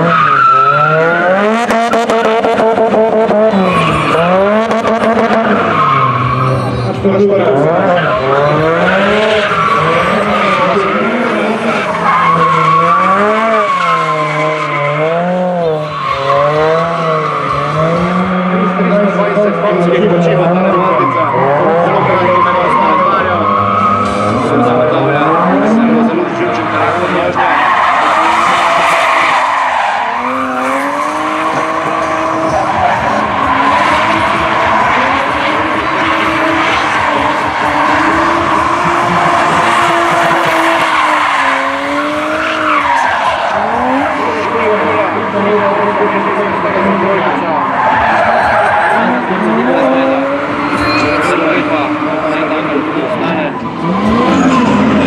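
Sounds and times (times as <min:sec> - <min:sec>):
car engine revving: 0:00.0 - 0:55.0
tyres screeching on asphalt: 0:00.0 - 0:55.0.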